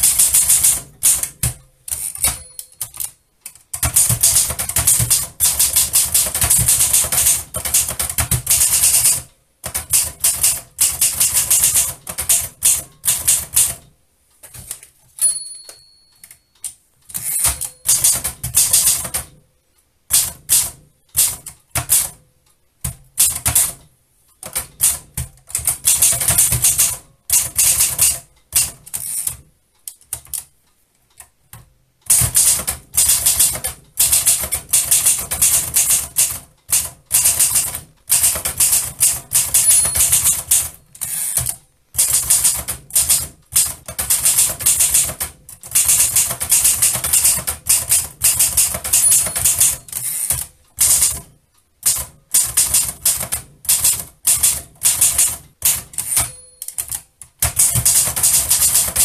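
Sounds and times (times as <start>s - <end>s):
typewriter keys clacking: 0.0s - 19.4s, 20.1s - 22.2s, 22.8s - 30.5s, 31.5s - 59.0s
typewriter margin bell ringing: 2.1s - 3.1s, 15.2s - 16.6s, 17.2s - 18.8s, 39.4s - 41.4s, 48.5s - 50.3s, 56.0s - 57.0s.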